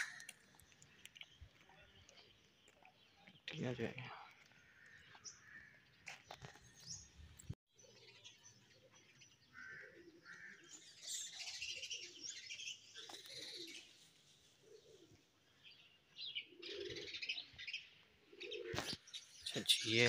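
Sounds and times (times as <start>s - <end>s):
small birds chirping: 0.0s - 20.0s
pigeons cooing: 11.3s - 15.3s, 16.2s - 19.0s.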